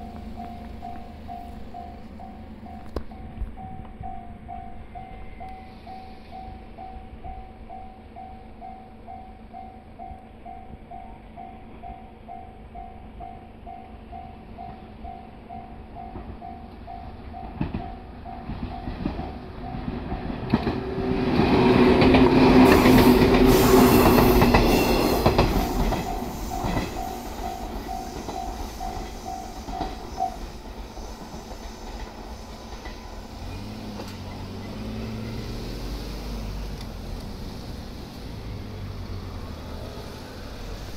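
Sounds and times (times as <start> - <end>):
train motor hum: 0.0 - 5.6, 16.2 - 40.9
train wheels clacking: 16.0 - 35.4.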